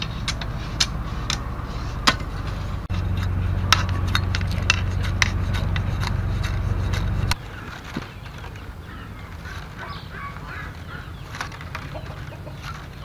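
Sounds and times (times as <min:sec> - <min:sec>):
low rumble: 0:00.0 - 0:07.6
knife scraping bamboo: 0:00.0 - 0:08.6, 0:09.2 - 0:13.0.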